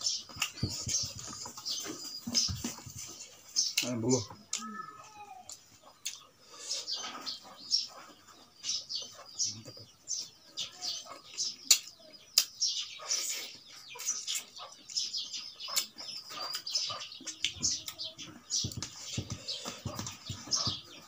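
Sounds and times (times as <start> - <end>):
wet chewing and lip smacking: 0.3 - 0.6, 5.4 - 6.3, 11.2 - 13.4, 15.7 - 18.0.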